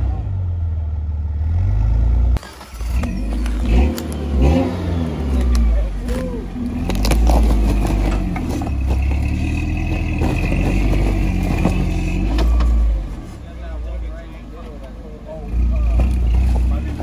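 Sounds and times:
engine revving: 0.0 - 13.3.

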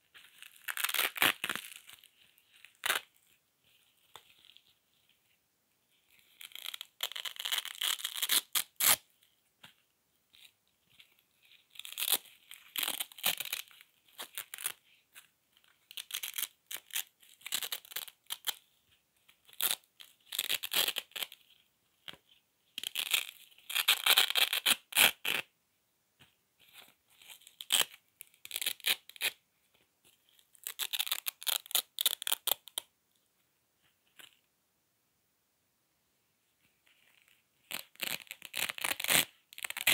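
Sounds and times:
velcro strips ripping apart: 0.2 - 3.3, 6.1 - 9.0, 11.6 - 18.6, 19.4 - 21.4, 22.8 - 25.5, 27.2 - 29.4, 30.4 - 32.9, 37.1 - 39.9.

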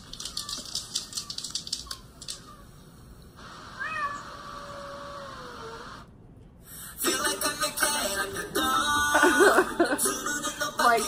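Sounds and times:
cat meow through laptop speaker: 3.7 - 6.0.

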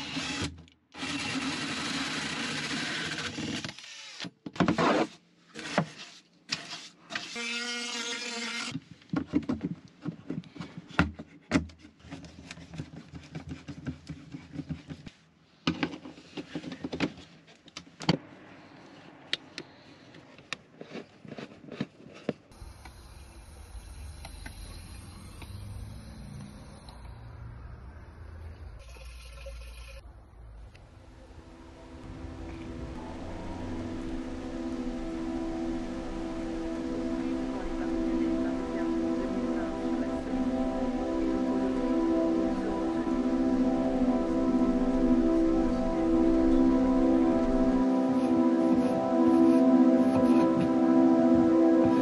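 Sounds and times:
drill with hole saw cutting: 0.0 - 4.3, 5.6 - 8.8
low outdoor rumble: 22.5 - 48.0.

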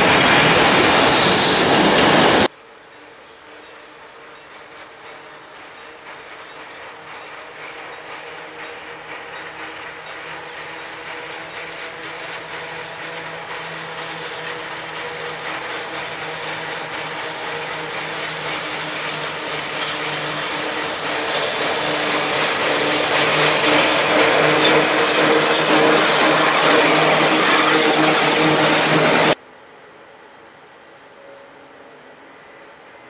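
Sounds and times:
wheels hissing on rail: 0.0 - 29.4
electric locomotive motor whine: 9.8 - 29.4.

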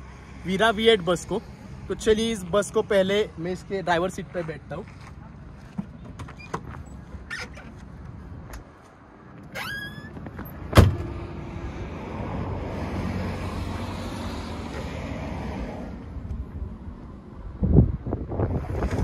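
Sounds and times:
door squeak: 6.3 - 6.6, 7.2 - 7.7, 9.5 - 11.1
door slamming shut: 10.7 - 11.2.

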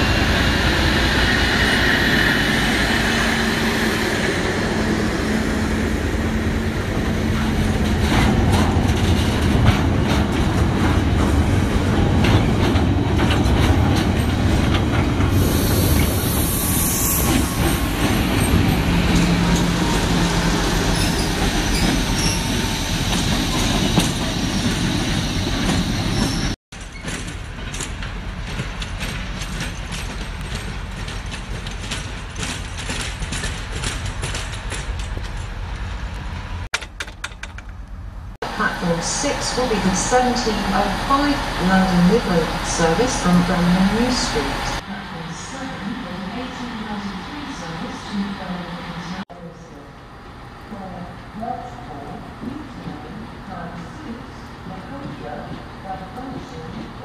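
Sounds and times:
diesel locomotive engine running: 0.0 - 16.6, 38.4 - 44.9
wheels clicking over rail joints: 26.7 - 38.1.

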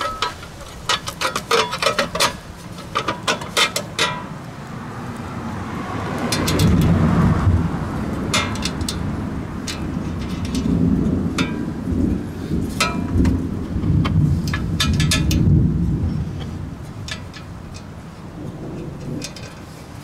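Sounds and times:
small metal clicks and knocks: 0.0 - 4.5, 6.2 - 7.0, 8.1 - 11.8, 12.8 - 15.6, 16.4 - 20.0
thunder rumble: 4.9 - 20.0.

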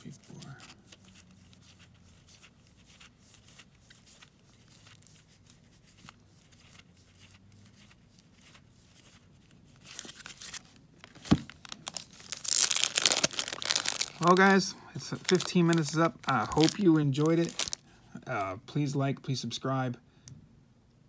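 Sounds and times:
trading cards rustling and clicking: 0.0 - 9.2, 9.8 - 17.8
plastic crinkling: 9.8 - 17.8.

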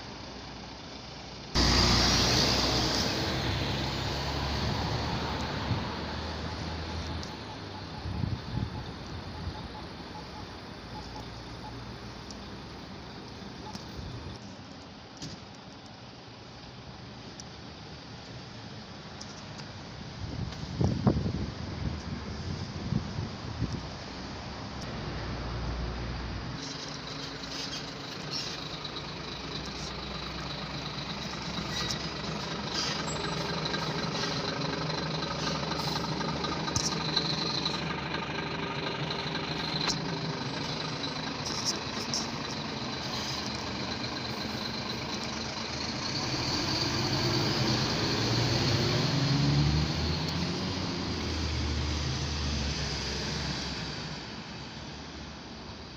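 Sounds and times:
diesel engine idling: 0.0 - 14.4, 26.6 - 52.3
low engine rumble: 0.0 - 55.9.

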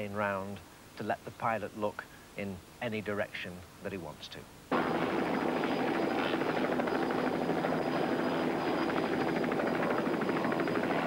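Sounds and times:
helicopter rotor chop: 4.7 - 11.0.

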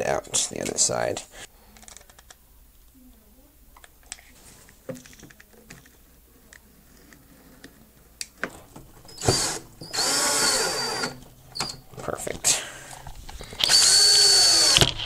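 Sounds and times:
cordless drill running: 9.1 - 11.2, 13.5 - 15.0.

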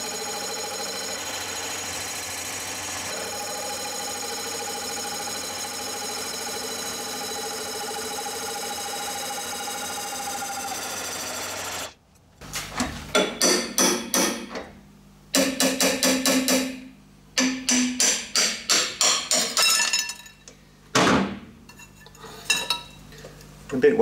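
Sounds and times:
lathe tool cutting metal whine: 0.0 - 11.9.

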